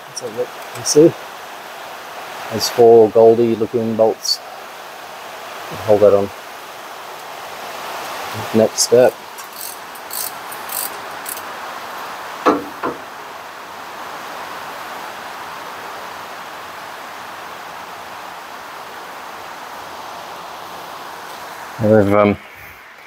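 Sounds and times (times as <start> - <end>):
steady hiss: 0.0 - 23.0
ratchet wrench clicks: 9.4 - 11.5
sharp knocks: 12.4 - 13.2.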